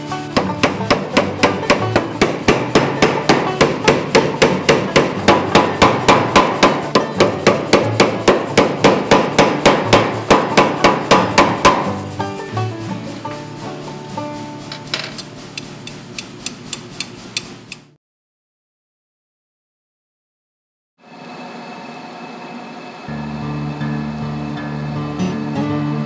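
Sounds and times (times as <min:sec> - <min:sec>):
power hammer striking hot steel: 0:00.2 - 0:12.4, 0:14.6 - 0:18.0.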